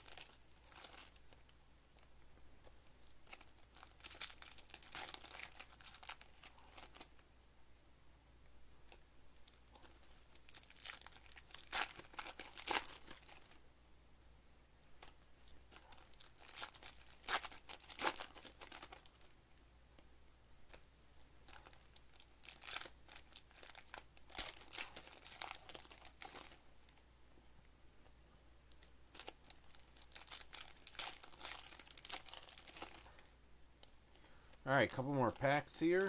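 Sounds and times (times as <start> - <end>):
foil wrappers crinkling and tearing: 0.0 - 1.3, 3.0 - 7.2, 9.4 - 13.6, 15.5 - 19.3, 21.5 - 26.6, 29.1 - 33.4.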